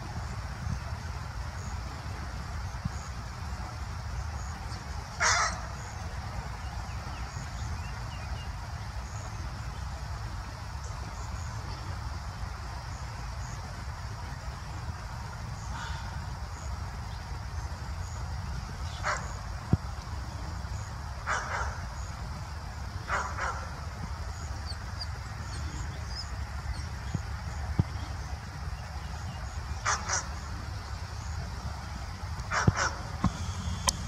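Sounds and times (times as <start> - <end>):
steady low rumble: 0.0 - 34.0
dog barking: 21.3 - 21.8, 23.1 - 23.7, 32.5 - 33.0.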